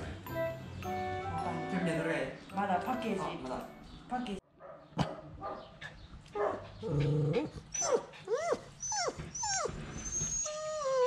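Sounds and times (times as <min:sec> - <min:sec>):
dog whining: 0:06.8 - 0:11.0.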